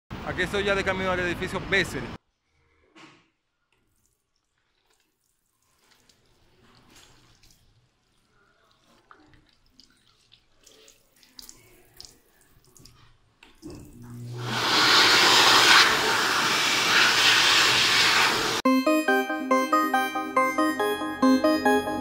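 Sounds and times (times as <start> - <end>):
hand dryer blowing air: 14.3 - 18.6.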